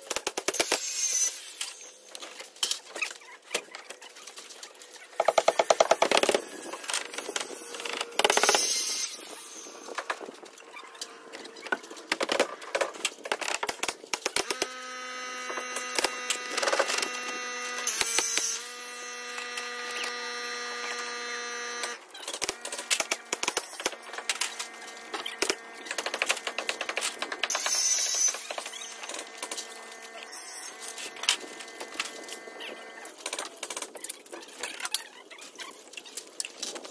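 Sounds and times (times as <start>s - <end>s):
steady multi-tone hum: 4.9s - 33.5s.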